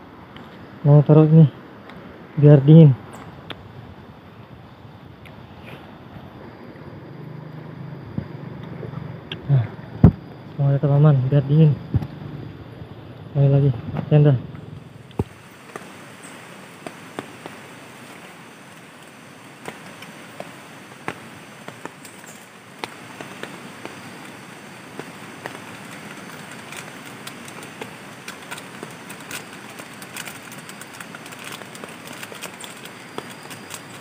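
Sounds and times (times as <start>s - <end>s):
powder shaken from sachet: 26.5s - 34.0s.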